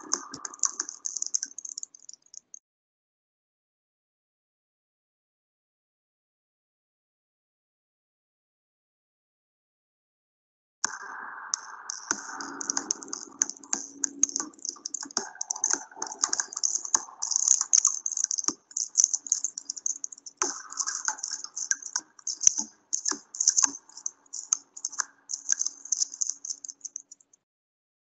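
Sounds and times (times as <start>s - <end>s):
rapid irregular clicking and rattling: 0.0s - 2.6s, 11.6s - 27.3s.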